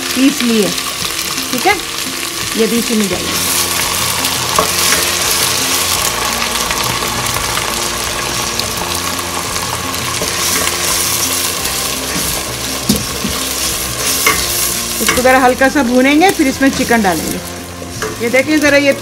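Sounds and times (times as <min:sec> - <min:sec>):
paste sizzling in hot oil: 0:00.0 - 0:19.0.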